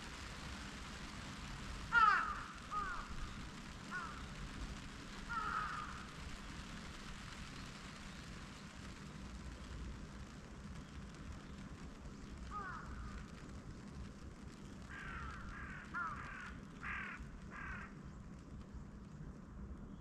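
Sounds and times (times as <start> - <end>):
distant city traffic hum: 0.0 - 20.0
crow cawing: 1.9 - 3.3, 3.9 - 4.3, 5.3 - 6.1, 12.5 - 13.2, 14.9 - 18.0.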